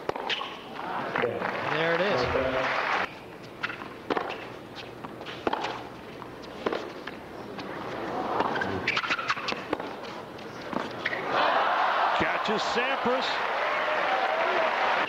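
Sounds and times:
racket hitting tennis ball: 3.6 - 4.4, 5.4 - 5.8, 8.4 - 9.9.

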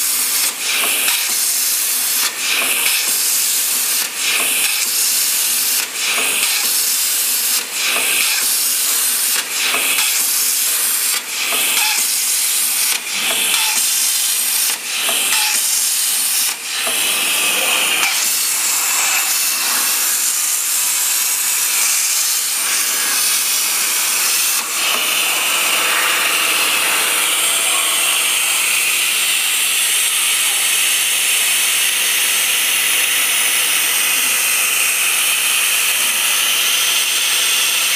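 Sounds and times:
plasma torch hissing: 4.6 - 31.4.

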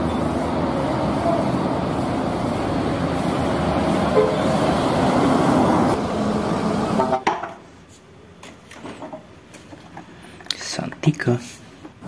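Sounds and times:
road traffic: 0.0 - 10.7
horn-like tone: 4.1 - 4.6.

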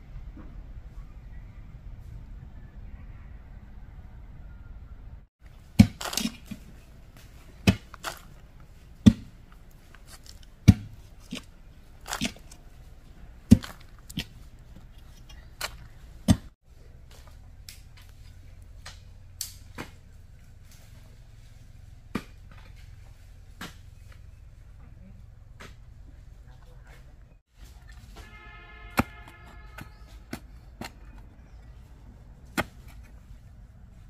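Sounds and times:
digging strikes into soil: 5.5 - 12.7, 13.4 - 14.4, 27.9 - 31.3, 32.4 - 33.2
loose stones rattling: 5.6 - 16.5.

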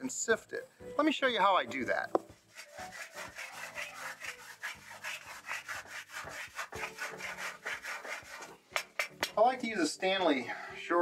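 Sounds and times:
rasp scraping dry clay: 2.4 - 8.6.

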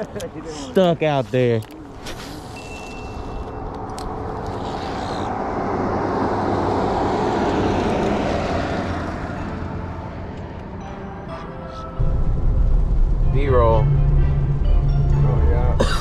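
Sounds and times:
vehicle passing by: 3.4 - 10.8.

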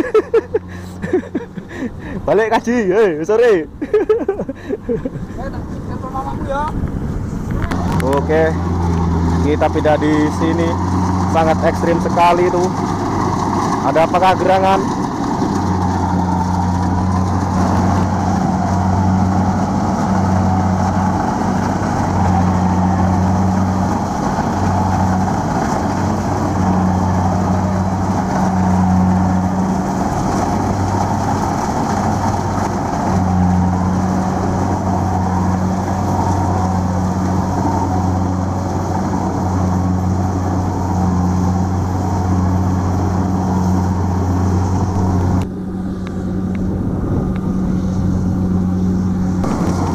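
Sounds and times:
diesel engine running: 0.0 - 49.9
low hum: 6.7 - 24.0, 38.2 - 49.9.

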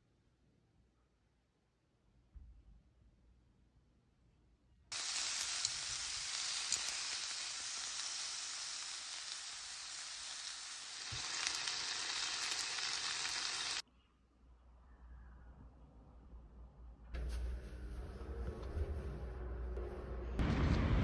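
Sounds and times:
pork sizzling in a pan: 4.9 - 13.8.

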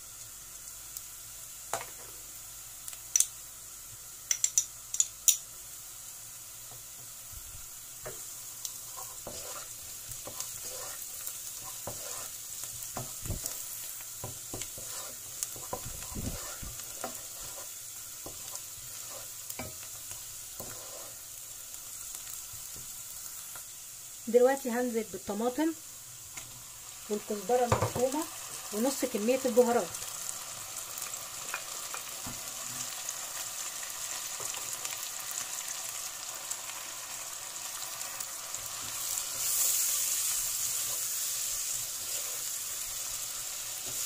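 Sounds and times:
food sizzling in hot oil: 0.0 - 44.0
wooden spoon scraping a pot: 8.8 - 13.6, 14.3 - 19.7, 20.6 - 21.2, 41.8 - 42.6.

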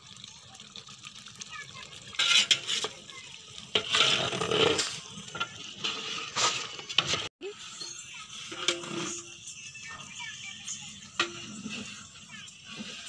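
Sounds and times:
curry simmering: 0.0 - 7.3, 10.7 - 13.0
ladle scraping in metal pot: 2.1 - 3.1, 3.7 - 10.1, 10.9 - 13.0.

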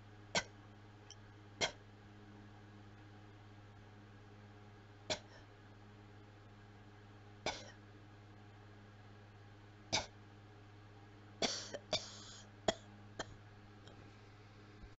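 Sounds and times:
person coughing: 5.1 - 5.4, 7.5 - 7.8, 11.4 - 13.4.

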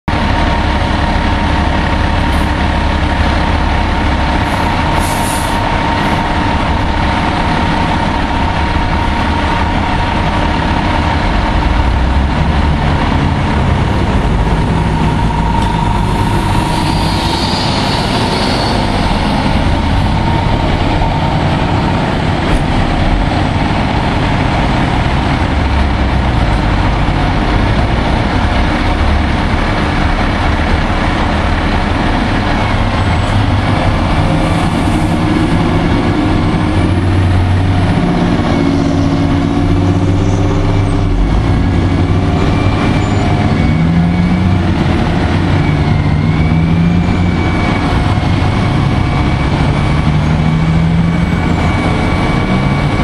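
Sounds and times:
truck diesel engine running: 0.1 - 53.0.

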